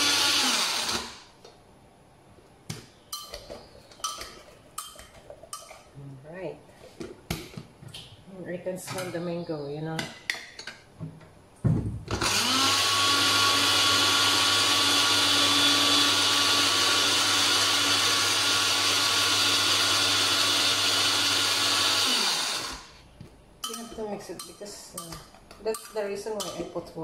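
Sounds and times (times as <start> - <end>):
blender whirring: 0.0 - 1.3, 12.1 - 23.0.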